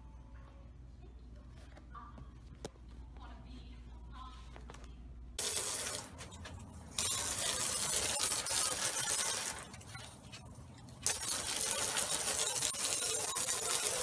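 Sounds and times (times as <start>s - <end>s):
garden hose spraying water: 5.4s - 6.3s, 6.9s - 10.2s, 11.0s - 14.0s.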